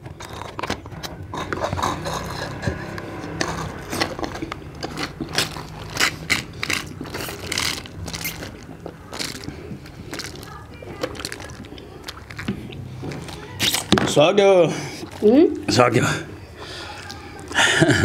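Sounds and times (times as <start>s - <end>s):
sucking through straws: 1.3s - 14.0s
cardboard cartons crumpling: 4.3s - 11.7s.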